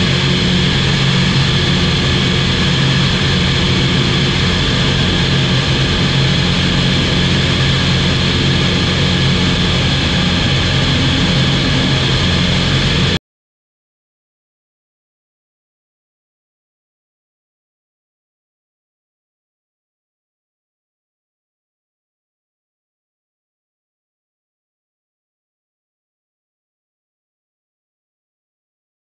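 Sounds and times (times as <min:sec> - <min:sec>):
aircraft engine droning: 0:00.0 - 0:13.2
rush of air: 0:00.0 - 0:13.2.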